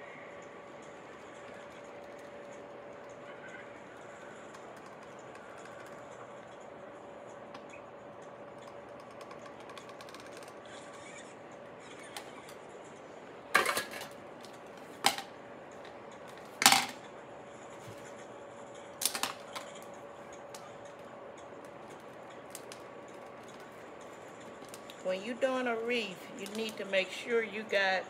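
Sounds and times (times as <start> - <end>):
faint steady hum: 0.0 - 28.0
tools clacking when set down: 13.6 - 14.2.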